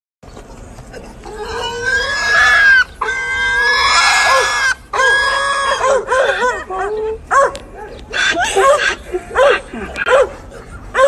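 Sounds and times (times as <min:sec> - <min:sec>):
hog squealing: 0:01.2 - 0:06.7, 0:08.1 - 0:09.0.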